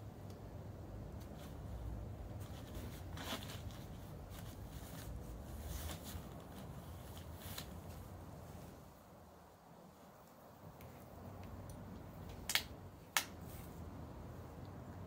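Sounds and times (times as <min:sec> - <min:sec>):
plastic sheet rustling and crackling: 0:01.3 - 0:08.2.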